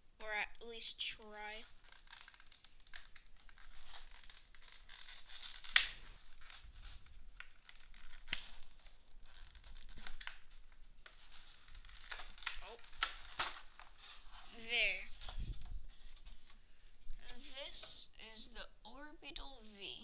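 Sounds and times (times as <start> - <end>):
plastic packaging crinkling: 1.6 - 17.9
sharp plastic snap: 5.7 - 6.0.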